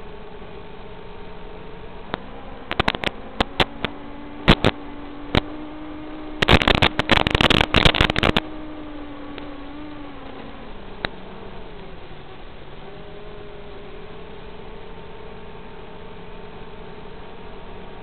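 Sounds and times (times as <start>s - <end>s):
receiver hiss and hum: 0.0s - 18.0s
static crackles: 2.1s - 11.9s.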